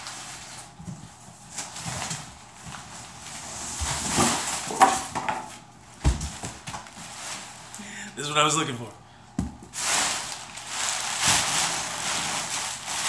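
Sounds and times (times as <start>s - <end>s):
packing material rustling: 0.0s - 0.8s, 6.2s - 7.9s, 9.7s - 13.0s.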